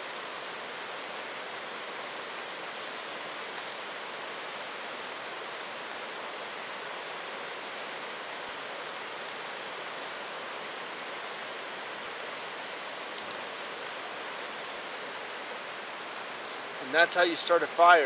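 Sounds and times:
steady rain hiss: 0.0s - 18.0s
faint click: 13.1s - 13.4s.

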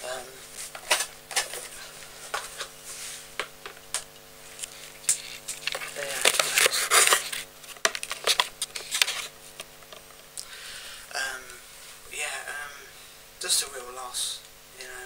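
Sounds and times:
rubbing against microphone: 0.5s - 3.4s, 4.4s - 9.6s.

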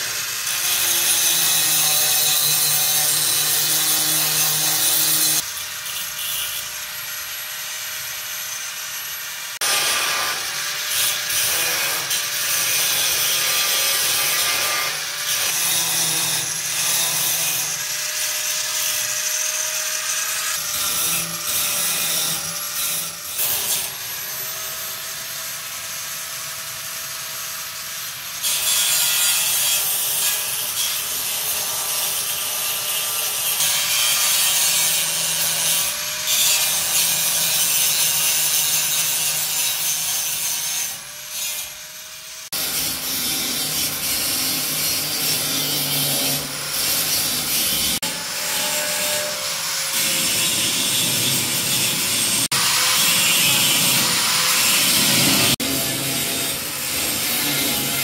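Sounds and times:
rasping tool scraping: 9.6s - 24.5s.

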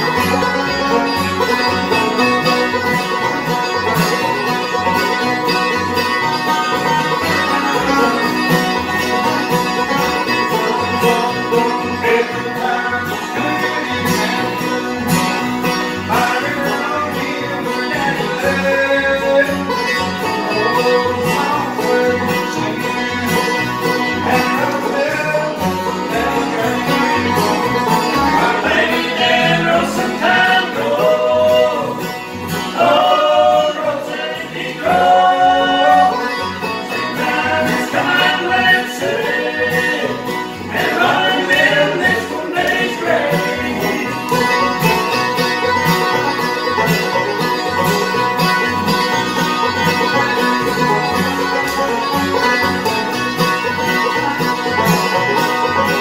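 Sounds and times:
bluegrass band playing: 0.0s - 56.0s
men singing: 0.3s - 3.5s, 6.3s - 45.4s.

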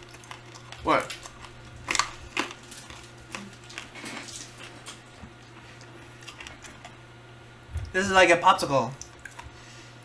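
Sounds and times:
clicks and rustles of eating: 0.0s - 7.1s, 8.9s - 9.6s
steady low hum: 0.0s - 10.0s.

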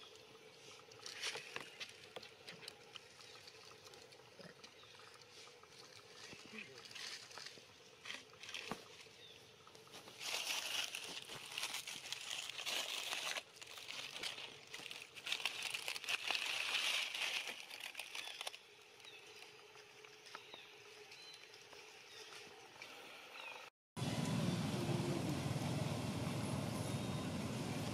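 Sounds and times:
dry leaves rustling and crackling: 5.9s - 9.2s, 9.8s - 20.4s.

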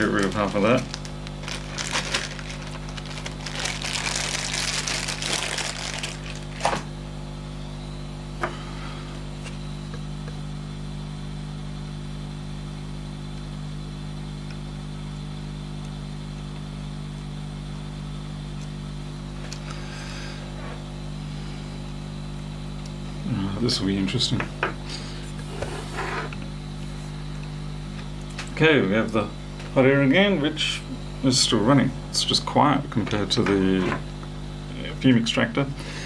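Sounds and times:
bench equipment humming: 0.0s - 36.0s.

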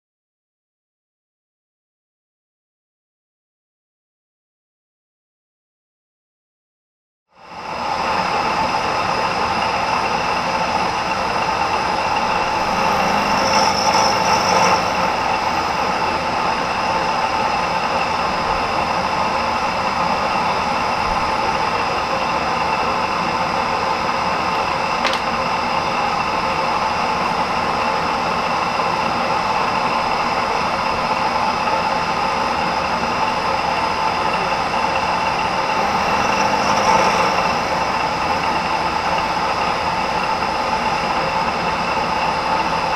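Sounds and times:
milling machine whine and hum: 7.4s - 42.9s
sharp click: 25.0s - 25.4s.

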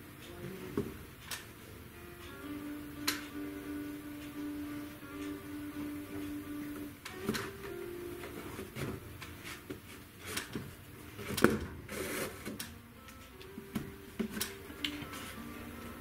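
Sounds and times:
rustling scrape: 11.2s - 12.6s.

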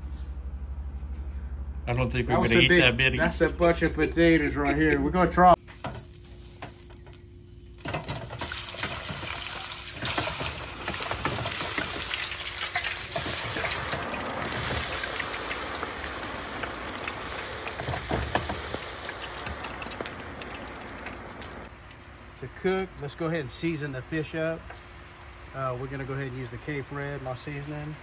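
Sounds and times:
oil sizzling and bubbling: 5.6s - 22.4s, 24.6s - 26.2s.

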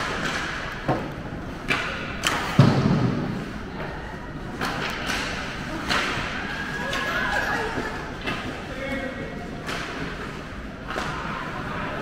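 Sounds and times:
hockey sticks and puck clacking: 0.0s - 3.5s, 4.6s - 7.2s, 8.2s - 11.4s.

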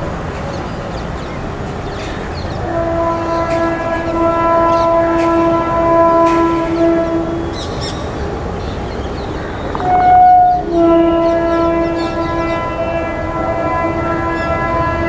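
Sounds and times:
faint rail clicks: 0.0s - 7.2s, 8.6s - 10.6s
train rumbling past: 0.0s - 15.0s
locomotive air horn blast: 2.6s - 7.8s, 9.8s - 15.0s.

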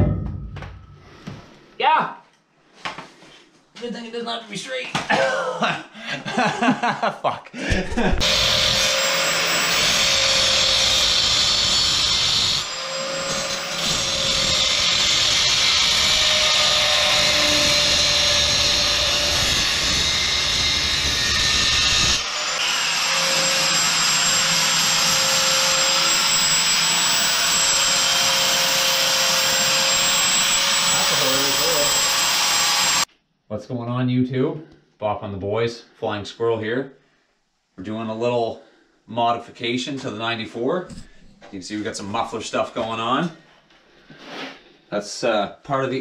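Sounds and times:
angle grinder cutting metal pipe: 8.0s - 33.1s.

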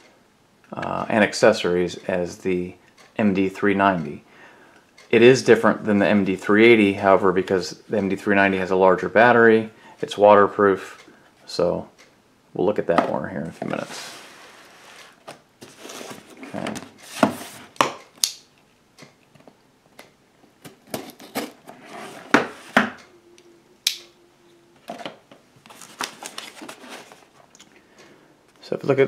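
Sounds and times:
cardboard scraping and rustling: 13.6s - 17.7s, 20.9s - 22.8s, 25.6s - 27.4s.

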